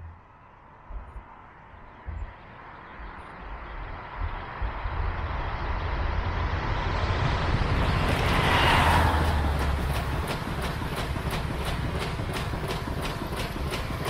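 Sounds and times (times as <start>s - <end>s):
train wheels rushing on rails: 3.8s - 14.0s.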